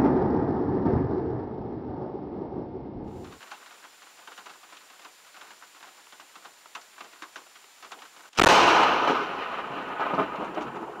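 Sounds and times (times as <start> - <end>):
loud thunderclap crack: 0.0 - 2.3, 4.3 - 11.0
rain ticking on windshield: 3.2 - 8.4.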